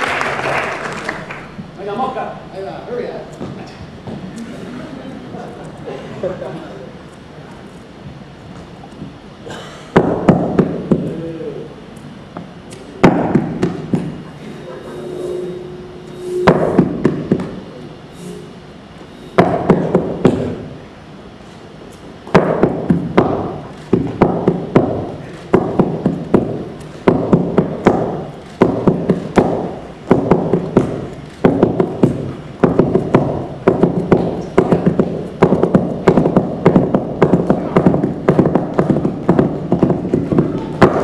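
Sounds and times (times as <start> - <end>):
percussion taps and knocks: 10.0 - 11.1, 12.4 - 14.2, 16.5 - 17.6, 19.4 - 20.6, 22.3 - 41.0.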